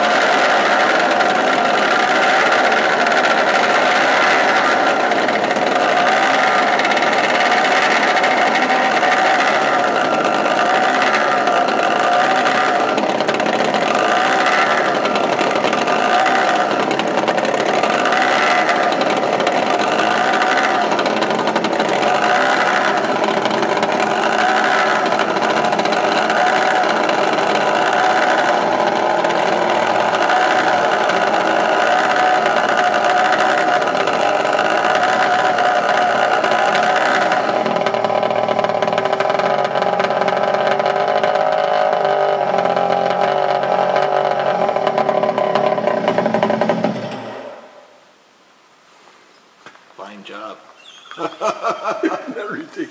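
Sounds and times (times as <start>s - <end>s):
small engines droning at idle: 0.0s - 47.8s, 50.8s - 52.9s.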